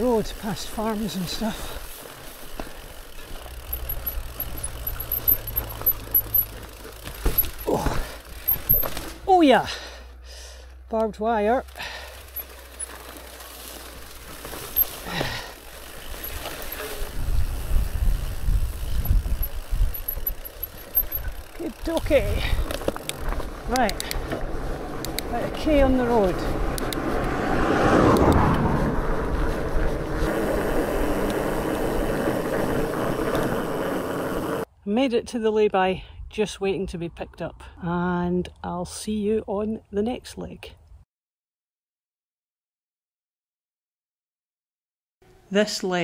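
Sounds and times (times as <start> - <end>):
bike tyres rolling on tarmac: 0.0 - 10.0, 11.0 - 34.7
wind rushing over microphone: 16.9 - 34.6.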